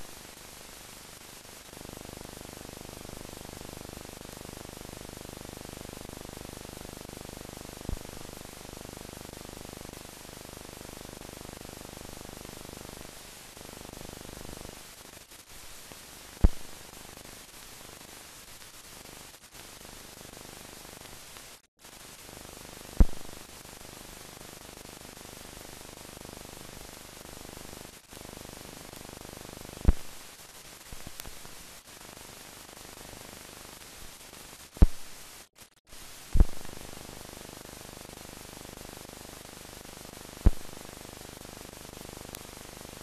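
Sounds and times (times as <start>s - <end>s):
film soundtrack hiss: 0.0s - 43.0s
sharp pops: 16.4s - 16.7s, 23.0s - 23.4s, 29.8s - 30.1s, 34.8s - 35.1s, 36.4s - 36.7s, 40.4s - 40.7s.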